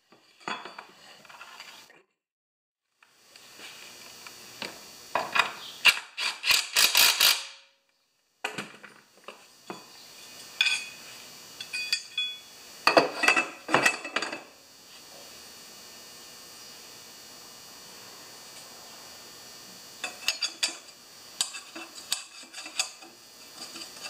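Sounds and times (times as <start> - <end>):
metal tools clinking and rattling: 11.6 - 12.4.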